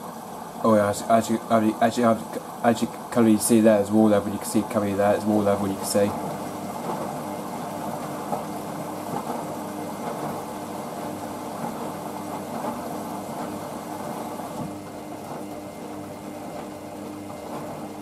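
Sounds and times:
washing machine motor hum: 0.0 - 18.0.

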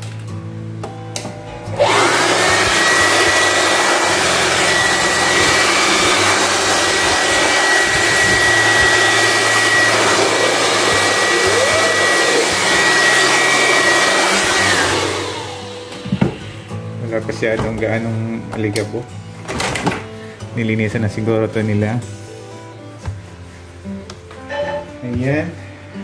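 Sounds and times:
electric blower motor whine: 1.5 - 17.0
rush of air: 1.8 - 10.2.

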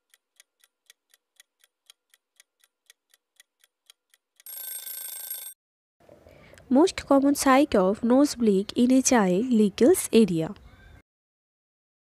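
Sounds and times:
clock ticking: 0.0 - 4.6.

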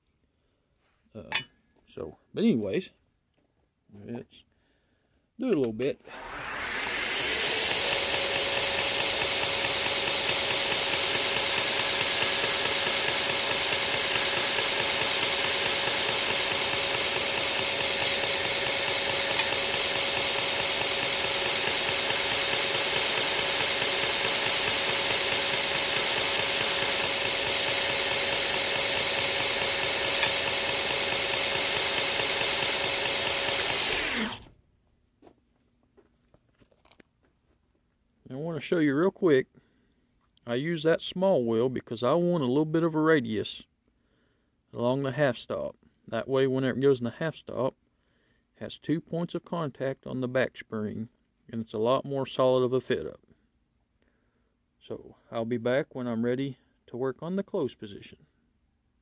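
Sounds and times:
belt grinder grinding metal: 6.1 - 34.5.

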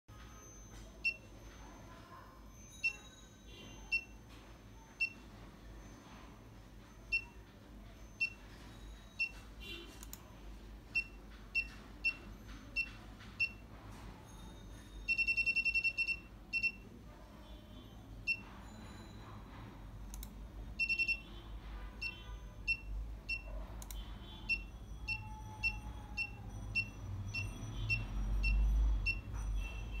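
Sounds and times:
electronic buzzer beeping: 15.0 - 16.8, 20.8 - 30.0.

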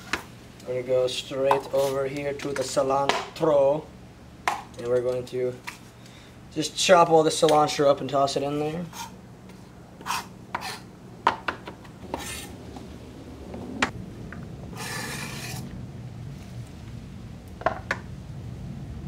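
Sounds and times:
food scraped off board: 14.8 - 15.7.

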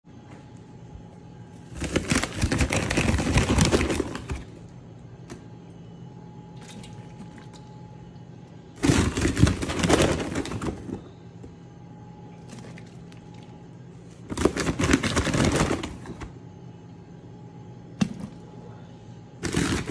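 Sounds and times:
faint hum: 0.1 - 19.9
plastic sack rustling: 1.6 - 4.6, 8.8 - 11.0, 14.2 - 16.2, 19.4 - 19.9.

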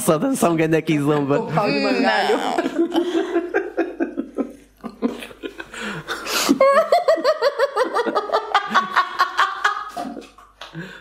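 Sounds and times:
people chuckling: 1.4 - 11.0
loud rhythmic laugh: 2.3 - 10.4.

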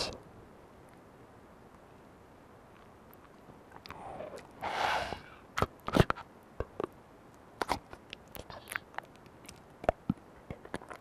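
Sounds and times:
sharp clicks and crunching cracks: 2.7 - 4.6, 5.6 - 11.0
short breathy hiss: 3.9 - 5.5.

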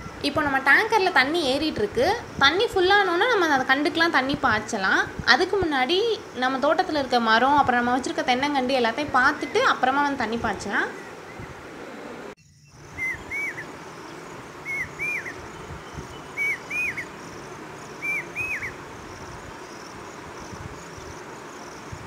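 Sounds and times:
insects chirring: 0.0 - 11.7, 12.3 - 22.0
bird two-note whistled call: 13.0 - 13.7, 14.6 - 17.1.

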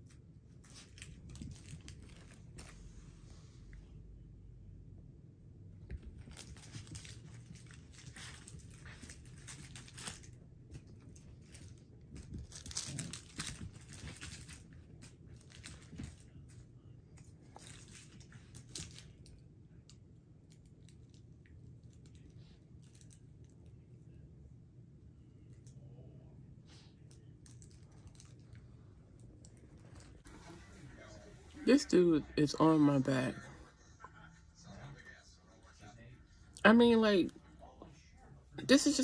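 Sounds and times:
rustling and crinkling: 0.0 - 3.7, 5.8 - 23.8, 26.7 - 31.0.

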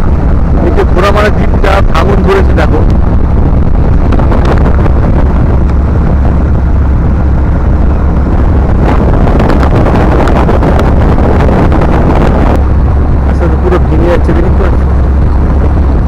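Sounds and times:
motorboat engine running: 0.0 - 16.0
wind buffeting microphone: 0.0 - 16.0.

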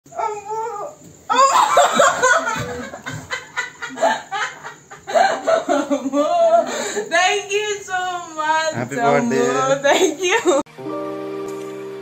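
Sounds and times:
people laughing: 1.3 - 6.7
voices: 5.5 - 10.6.

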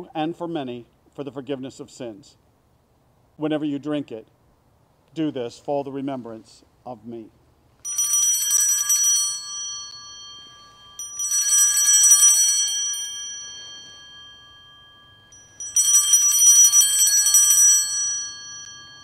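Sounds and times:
small altar bells shaken: 7.8 - 19.0.

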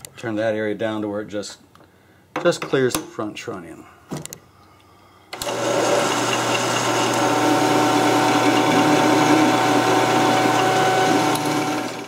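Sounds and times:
metal lathe motor whine: 5.4 - 12.0.

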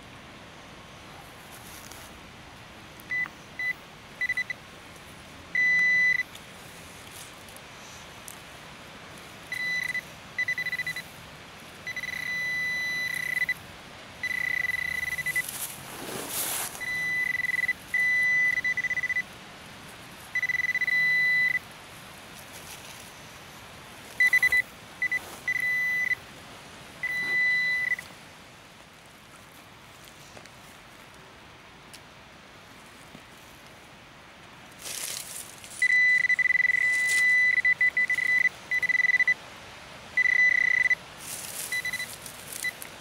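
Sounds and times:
pinpointer probe high beeping: 3.1 - 4.6, 5.6 - 6.3, 9.5 - 11.0, 11.9 - 13.6, 14.2 - 15.5, 16.8 - 19.3, 20.4 - 21.6, 24.2 - 26.2, 27.0 - 28.1, 35.8 - 39.4, 40.2 - 41.0, 41.7 - 42.8
soil scraping: 15.2 - 17.3.

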